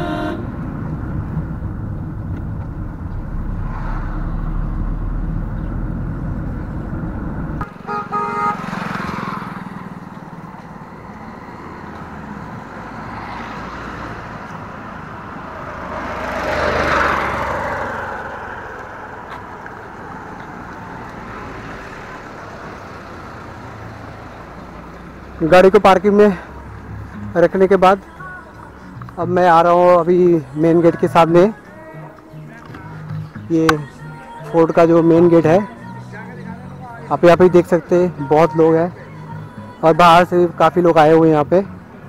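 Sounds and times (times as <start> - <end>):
short car horn toots: 0.0 - 0.4, 7.8 - 8.6
car driving uphill: 0.0 - 35.0
vehicle passing close by: 0.5 - 27.8.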